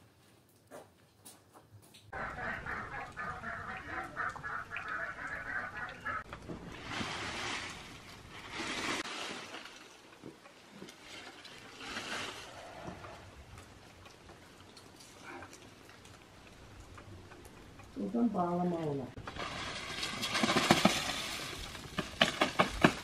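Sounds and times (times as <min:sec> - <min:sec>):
waterfowl calling: 0:02.1 - 0:06.3
shrub branches rustling: 0:06.2 - 0:12.8, 0:19.2 - 0:23.0.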